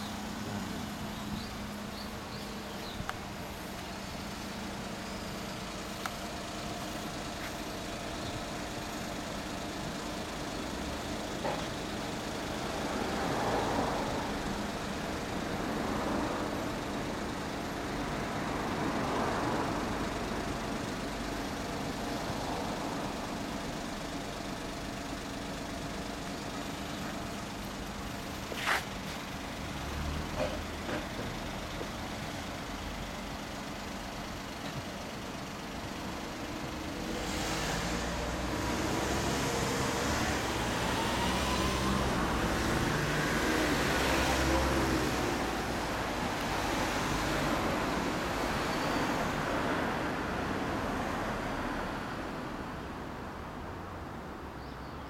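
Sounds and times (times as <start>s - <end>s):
motorcycle engine idling: 0.0s - 13.3s.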